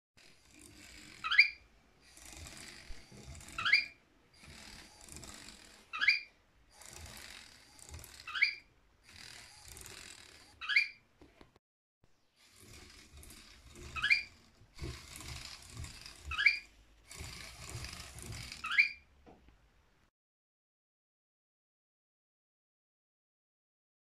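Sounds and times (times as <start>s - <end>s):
toy motor whirring through gears: 0.2s - 11.0s, 12.4s - 19.0s
high rising squeak: 1.0s - 7.2s, 8.0s - 8.7s, 9.3s - 11.0s, 12.5s - 19.1s.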